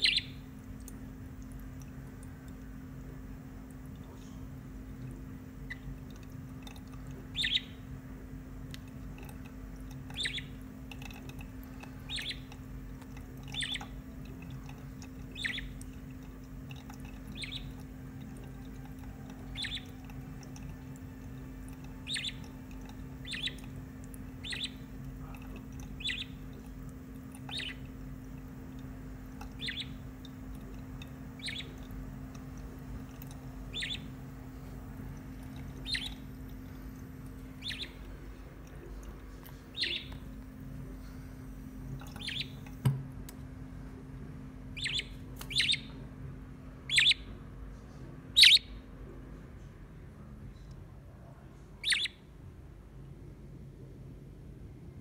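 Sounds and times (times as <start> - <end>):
budgerigar chirping: 0.0 - 0.4, 7.3 - 7.8, 10.2 - 10.6, 12.1 - 12.5, 13.6 - 13.9, 15.3 - 15.8, 17.4 - 17.8, 19.5 - 20.0, 22.0 - 22.6, 23.2 - 23.7, 24.4 - 24.9, 25.9 - 26.5, 27.4 - 27.9, 29.6 - 30.0, 31.4 - 31.8, 33.6 - 34.2, 35.8 - 36.3, 37.6 - 38.0, 39.7 - 40.2, 42.2 - 42.6, 44.8 - 45.9, 46.9 - 47.3, 48.4 - 48.8, 51.8 - 52.2
low hum: 0.0 - 55.0
thin stream of tap water: 0.1 - 7.9, 8.5 - 43.1.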